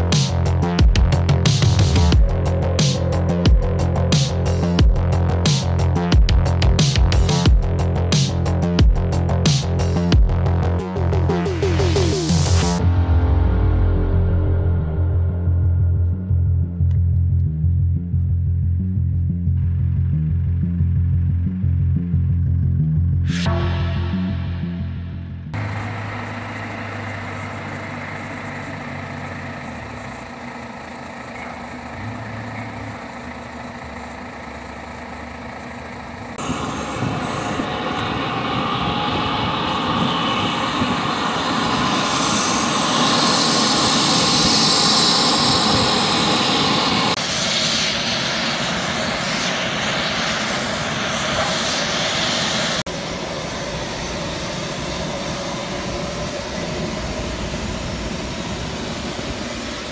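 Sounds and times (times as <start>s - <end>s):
jet engine rush and whine: 0.0s - 10.2s, 10.9s - 16.4s, 23.3s - 59.9s
tug engine hum: 23.5s - 47.2s.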